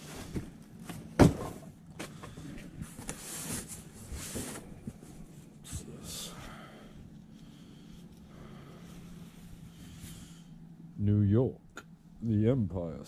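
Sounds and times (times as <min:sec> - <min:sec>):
rustling of items: 0:00.0 - 0:10.4.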